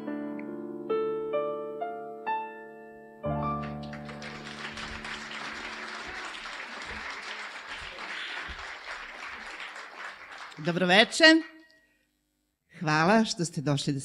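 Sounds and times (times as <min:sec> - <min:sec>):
audience applause: 0:03.6 - 0:10.8.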